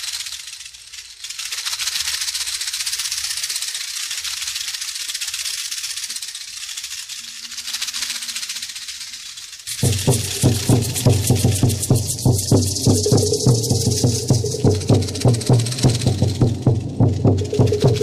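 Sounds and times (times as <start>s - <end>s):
cicadas buzzing: 9.7s - 18.0s.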